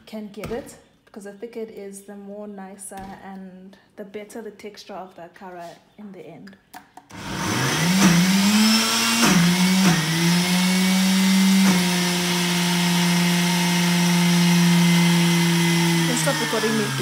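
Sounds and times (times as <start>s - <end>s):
blender motor running: 7.1s - 17.0s.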